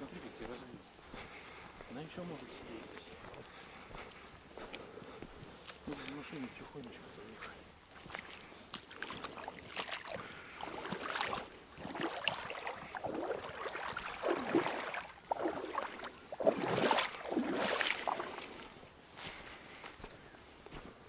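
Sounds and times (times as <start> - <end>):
footsteps sloshing through water: 0.0 - 21.0.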